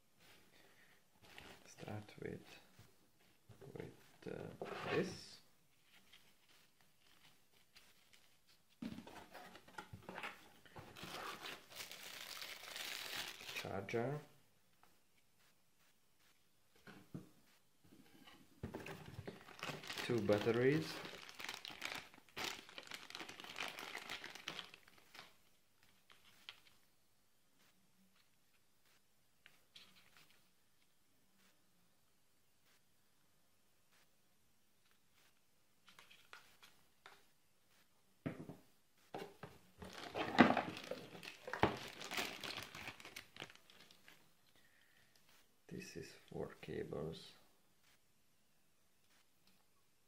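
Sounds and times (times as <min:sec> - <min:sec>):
plastic bags crinkling: 0:11.0 - 0:13.7, 0:19.2 - 0:25.4, 0:39.8 - 0:44.2.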